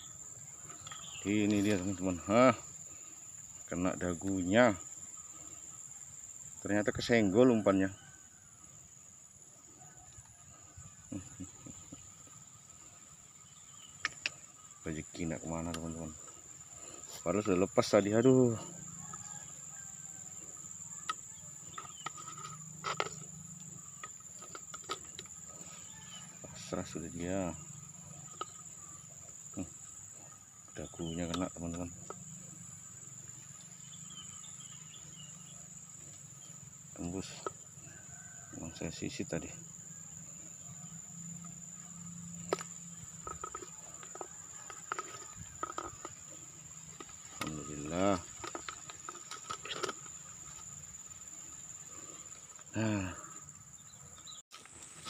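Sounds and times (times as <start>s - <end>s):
insect trilling: 0.0s - 55.0s
handling clicks and rustles: 20.6s - 27.0s, 42.3s - 51.5s.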